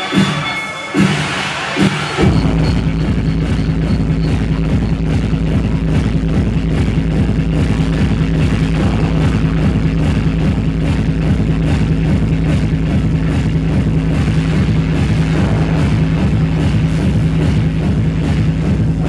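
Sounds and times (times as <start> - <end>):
electronic dance music: 0.0 - 19.0.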